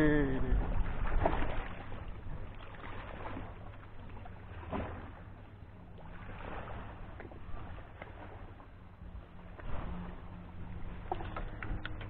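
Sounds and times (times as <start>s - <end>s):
low rumble: 0.0s - 12.0s.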